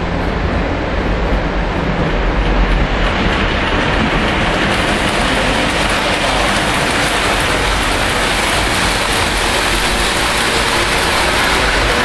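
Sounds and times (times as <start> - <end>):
model trains rumbling on track: 0.0 - 12.0.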